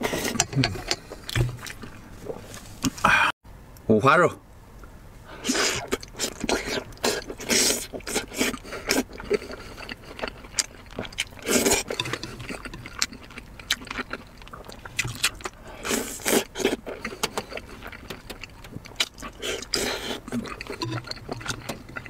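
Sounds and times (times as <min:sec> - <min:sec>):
wet chewing and lip-smacking: 0:00.0 - 0:03.0, 0:05.4 - 0:22.0
loud slurps: 0:05.4 - 0:10.1.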